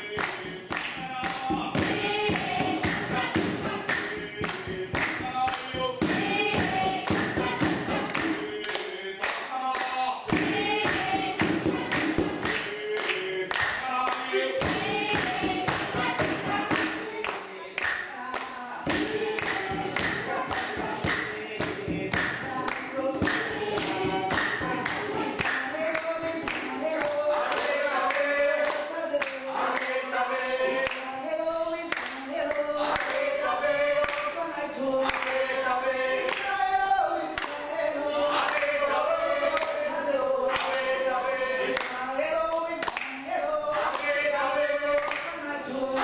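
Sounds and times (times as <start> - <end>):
rhythmic beat of sharp strikes: 0.0 - 30.1
choir singing: 0.0 - 46.0.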